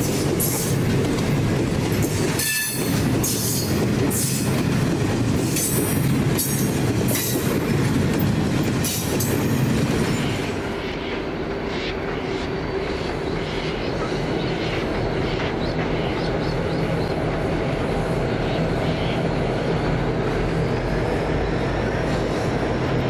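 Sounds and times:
wheel clatter over rail joints: 0.0s - 10.6s
train wagons rumbling: 0.0s - 23.0s.

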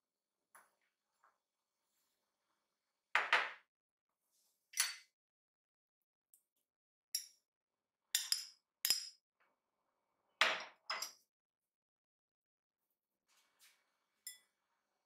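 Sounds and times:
metal spoon clinking ceramic dish: 4.8s - 5.1s, 8.2s - 9.2s, 10.6s - 11.2s, 14.3s - 14.5s
dish set down on counter: 10.4s - 11.2s.

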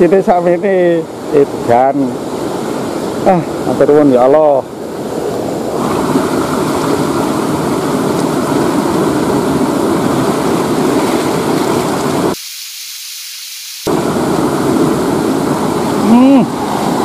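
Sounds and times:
river water rushing around rocks: 1.1s - 12.4s, 13.9s - 17.0s
faint hiss: 12.4s - 13.9s.

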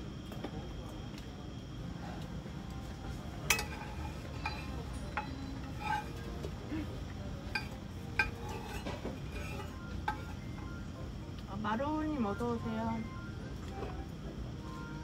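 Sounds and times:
metal utensils clinking on pans: 3.4s - 6.5s, 7.5s - 10.4s.

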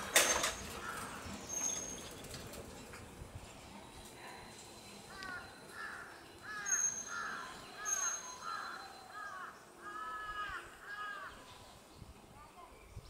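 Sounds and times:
crow cawing: 5.2s - 11.3s.

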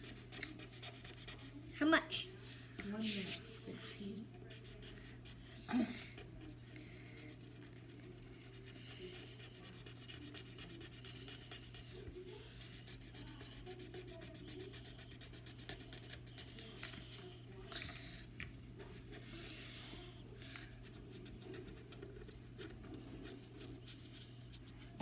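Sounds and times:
pencil scribbling on paper: 0.0s - 1.6s, 4.4s - 5.4s, 7.0s - 16.8s, 20.7s - 24.8s.

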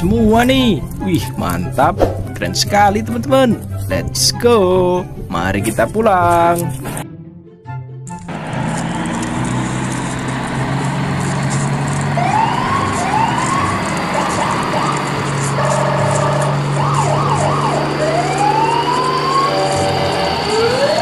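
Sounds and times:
rising siren whoops: 12.1s - 21.0s
held horn-like tone: 15.5s - 16.6s.

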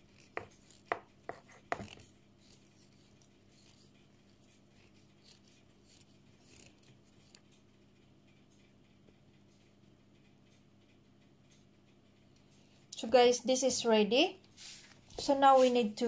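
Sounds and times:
whisk stirring cake batter: 0.0s - 7.4s, 14.6s - 16.0s
whisk knocking against bowl: 0.4s - 2.0s.

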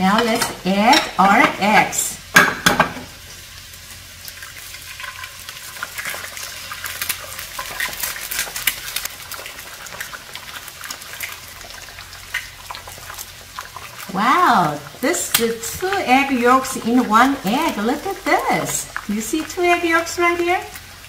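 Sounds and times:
eggs sizzling in oil: 0.0s - 21.0s
oil spattering crackles: 2.3s - 21.0s.

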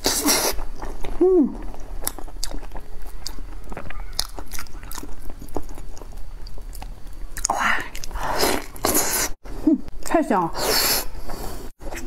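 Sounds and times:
wet chewing and lip smacks: 0.3s - 8.9s
person humming mm: 1.2s - 1.7s.

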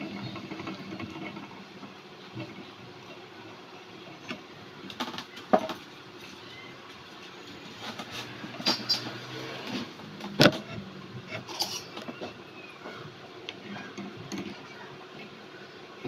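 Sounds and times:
spoon scraping in metal pot: 11.3s - 12.0s.

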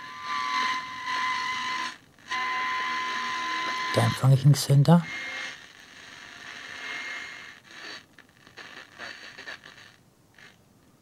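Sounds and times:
radio static and hiss: 3.9s - 10.6s.

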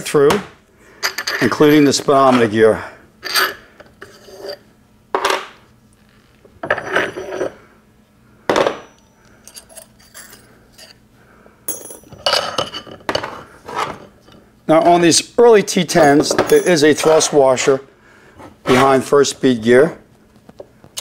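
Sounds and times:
steel parts knocking and clinking: 11.7s - 12.7s, 16.0s - 17.3s.

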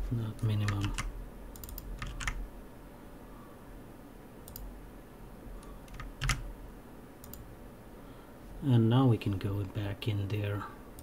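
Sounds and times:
computer keyboard keystrokes: 0.4s - 2.4s, 4.5s - 4.7s, 5.8s - 6.4s, 7.2s - 7.4s.

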